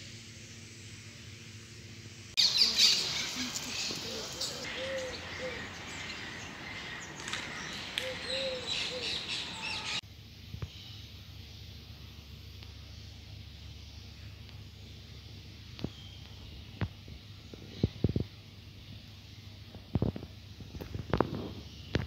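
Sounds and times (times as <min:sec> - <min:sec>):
birds chirping and calling: 0:02.4 - 0:10.0, 0:13.9 - 0:19.6.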